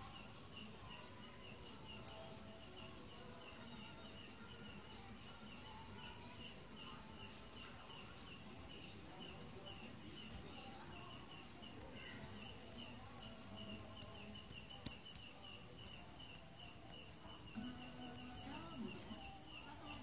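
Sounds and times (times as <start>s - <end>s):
faint high chirping: 0.0s - 20.0s
sharp clicks: 10.2s - 20.0s.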